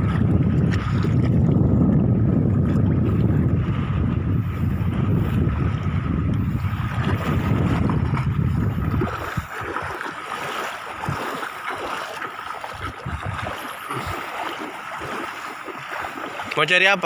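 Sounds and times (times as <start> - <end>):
child wading through water: 0.0 - 17.0
wind buffeting microphone: 0.0 - 17.0.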